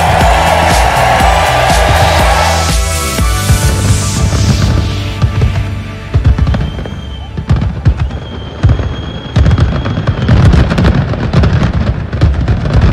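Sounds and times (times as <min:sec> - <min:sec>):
fireworks booms and crackles: 0:00.0 - 0:12.9
high firework whistles: 0:06.3 - 0:11.1.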